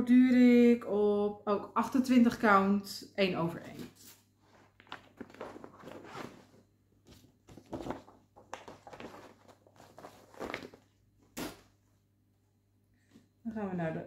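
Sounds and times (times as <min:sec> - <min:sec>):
fabric rustling and scraping: 0:03.6 - 0:11.7.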